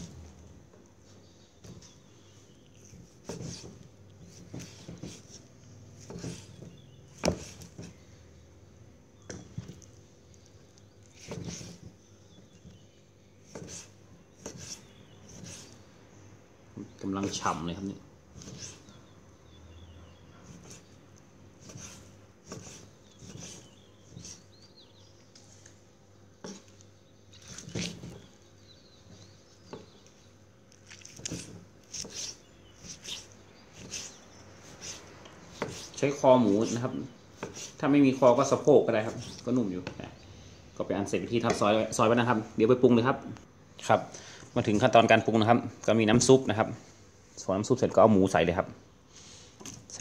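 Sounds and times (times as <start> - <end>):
knife cutting on wooden board: 2.7 - 8.0, 11.0 - 11.9, 13.4 - 15.8, 18.3 - 19.0, 20.4 - 20.9, 21.6 - 24.5, 27.4 - 28.4, 30.9 - 39.5.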